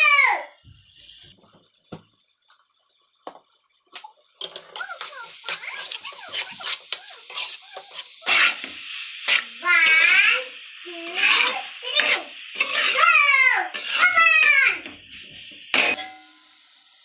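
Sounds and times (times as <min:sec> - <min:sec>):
frying sizzle: 0:00.0 - 0:17.0
metal spoon scraping pot: 0:04.4 - 0:08.6, 0:11.1 - 0:13.0, 0:13.7 - 0:14.2.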